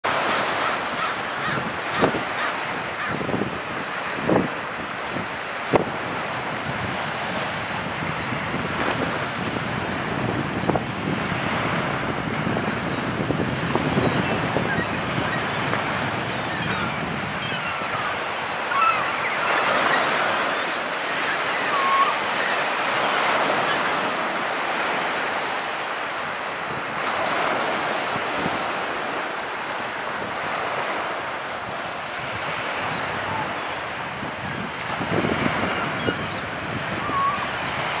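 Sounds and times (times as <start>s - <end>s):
sea water splashing: 0.0s - 38.0s
gull calls: 0.1s - 3.2s, 14.1s - 24.1s, 35.5s - 37.5s
wind on microphone: 0.1s - 38.0s.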